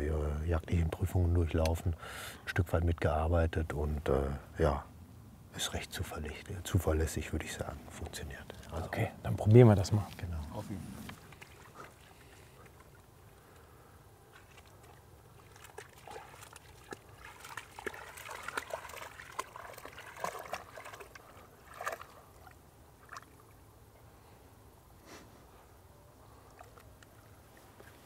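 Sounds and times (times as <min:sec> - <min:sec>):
dog splashing through water: 0:14.2 - 0:23.5.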